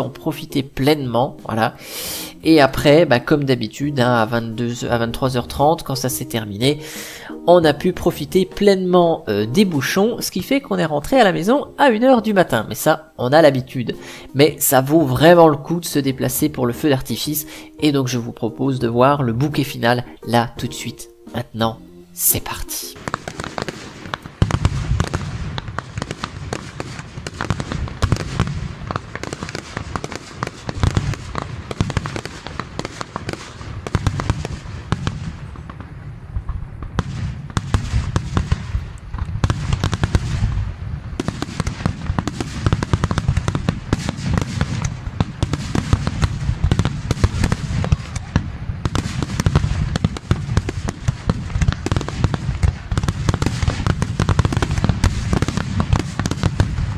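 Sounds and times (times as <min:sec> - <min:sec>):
fireworks bangs and crackles: 0:22.4 - 0:56.9.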